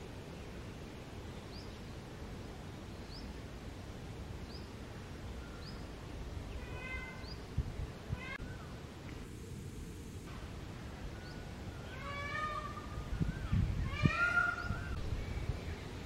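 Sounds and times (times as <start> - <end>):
birds chirping: 4.4 - 8.8, 10.8 - 16.0.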